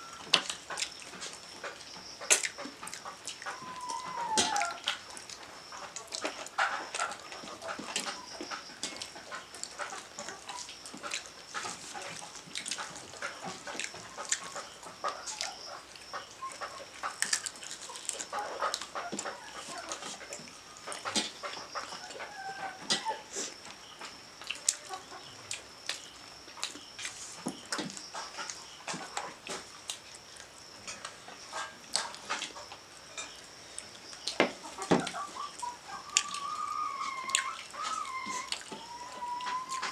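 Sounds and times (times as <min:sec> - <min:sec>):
animal calls: 0:00.0 - 0:25.5, 0:34.2 - 0:39.9.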